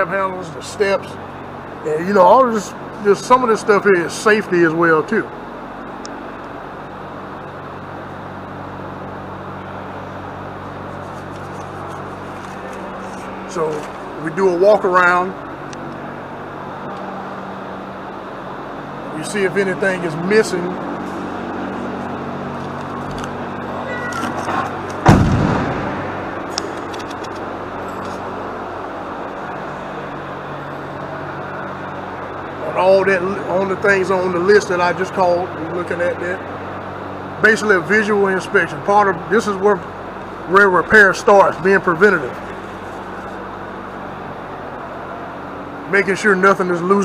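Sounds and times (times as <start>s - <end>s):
low mechanical hum: 0.0s - 47.0s
loud low thump: 25.0s - 26.4s.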